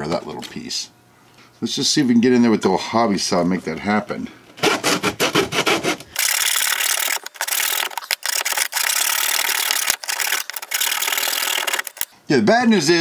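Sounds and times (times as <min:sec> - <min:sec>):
hobby saw rasping through plaster: 0:04.6 - 0:06.0.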